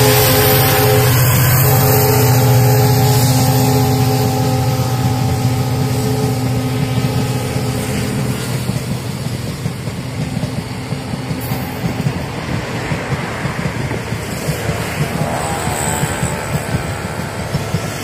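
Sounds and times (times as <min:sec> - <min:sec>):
diesel locomotive engine hum: 0:00.0 - 0:18.0
train coaches rumbling past: 0:00.0 - 0:18.0
wheels ticking over rail joints: 0:01.1 - 0:18.0.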